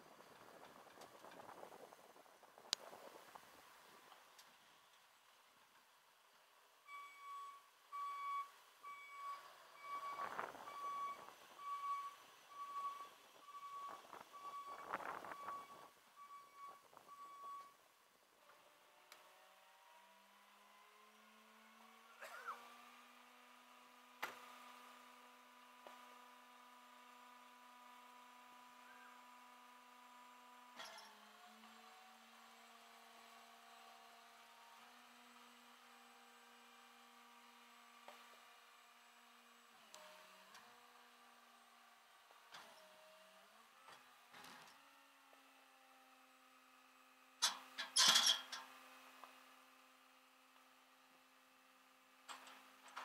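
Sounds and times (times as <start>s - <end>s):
tow truck engine humming: 0.0s - 53.0s
faint chirp: 28.8s - 29.2s
metal clanks and rattles: 47.4s - 48.7s.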